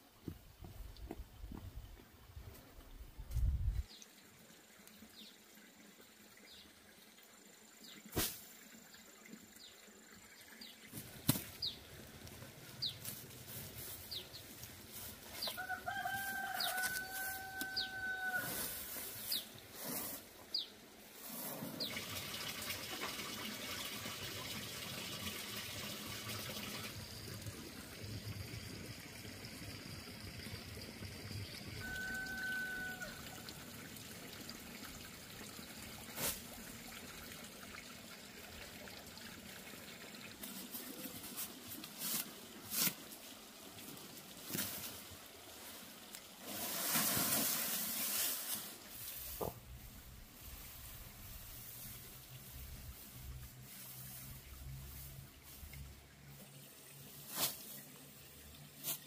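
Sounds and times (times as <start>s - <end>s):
rooster crowing: 15.5s - 18.7s, 31.8s - 33.4s.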